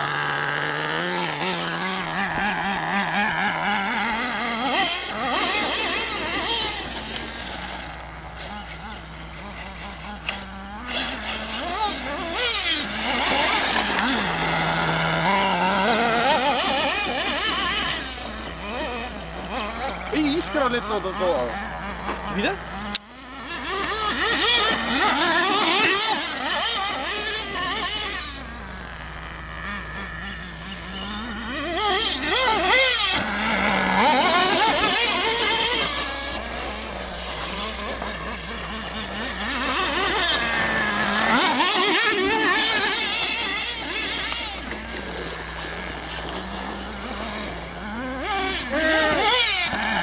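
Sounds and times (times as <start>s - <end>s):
small nitro engine revving: 0.0s - 50.0s.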